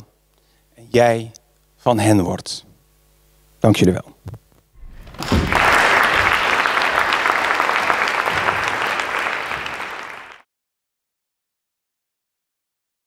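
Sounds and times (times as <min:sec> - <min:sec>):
audience applauding: 0:04.8 - 0:10.4.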